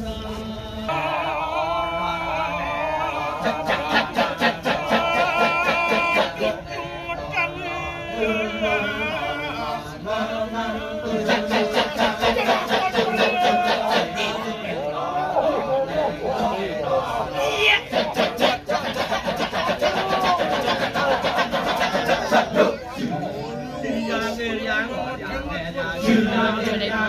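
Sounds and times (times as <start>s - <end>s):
male chorus chanting: 0.0s - 27.0s
lead voice: 11.8s - 16.3s.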